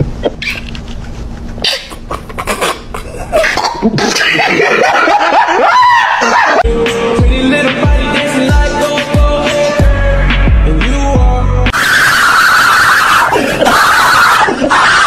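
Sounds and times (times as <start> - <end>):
man laughing hard: 1.6 - 6.7, 11.9 - 15.0
music with thumping beat: 6.6 - 11.7.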